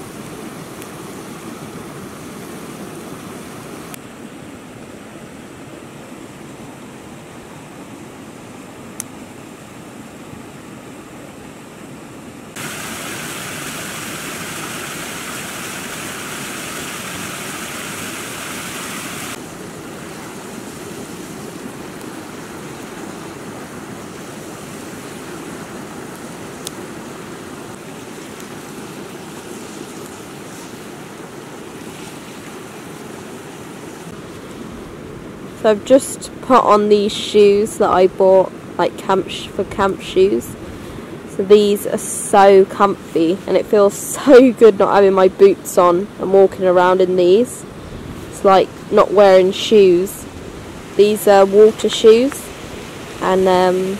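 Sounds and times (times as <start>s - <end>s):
running water: 12.5s - 34.5s, 41.3s - 53.9s
waterfall splashing over rocks: 12.6s - 33.8s.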